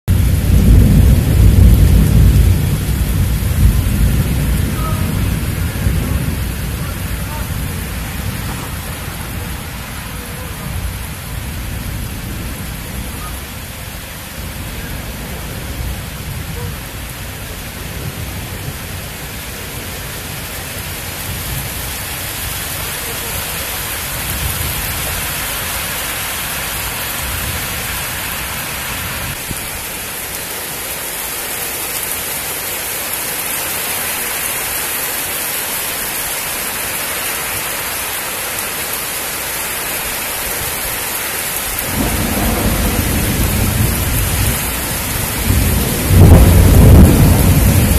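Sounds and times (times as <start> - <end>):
distant thunder: 0.1 - 25.8, 41.8 - 47.9
steady rain: 0.1 - 47.9.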